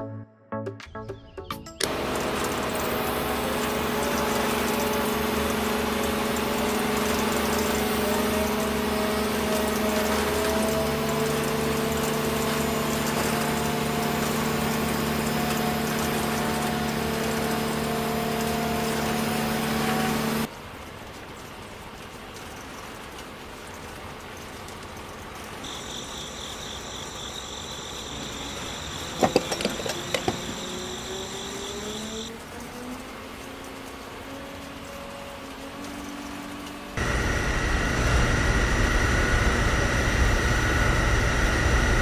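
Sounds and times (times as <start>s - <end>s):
electric gear motor whining: 1.8s - 20.5s, 25.7s - 32.3s.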